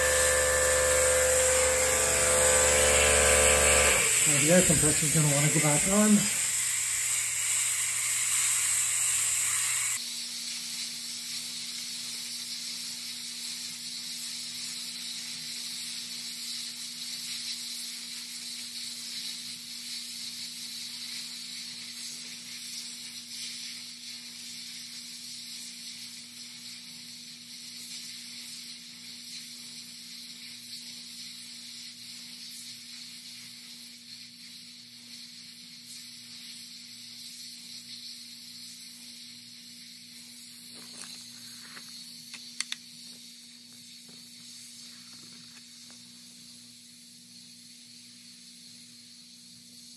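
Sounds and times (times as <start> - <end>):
air compressor motor hum: 0.0 - 10.0
compressed air hissing: 0.0 - 10.0.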